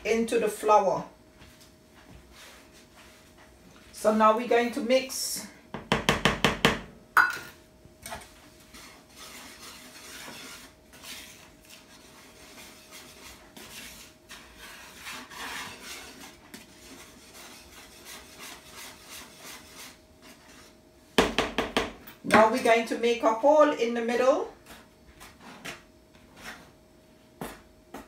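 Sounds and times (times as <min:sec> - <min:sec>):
wire whisk scraping in a bowl: 0:08.1 - 0:20.8.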